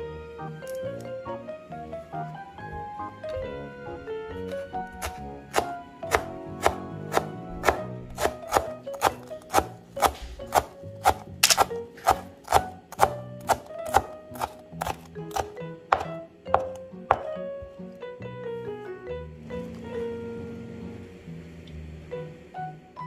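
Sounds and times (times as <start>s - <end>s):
background music: 0.0s - 23.0s
knife chopping on cutting board: 4.4s - 17.3s.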